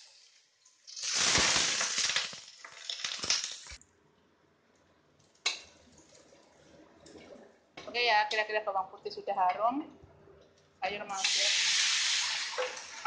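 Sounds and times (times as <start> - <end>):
garlic sizzling in hot oil: 0.0 - 3.8, 11.1 - 13.0.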